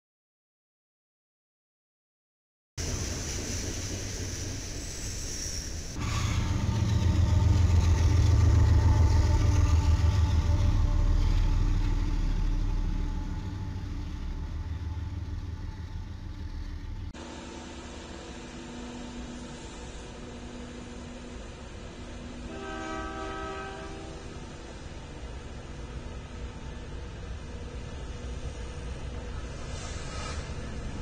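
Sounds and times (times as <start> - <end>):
diesel locomotive engine rumble: 2.8 - 31.0
freight cars rolling on rails: 2.8 - 31.0
steady hum: 6.0 - 22.6.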